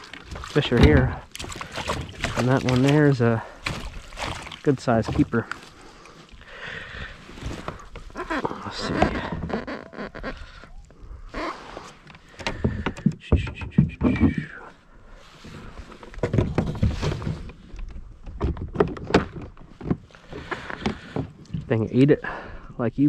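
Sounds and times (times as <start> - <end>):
knocks and thunks on a kayak: 0.0 - 5.7, 12.1 - 14.6, 15.6 - 21.7.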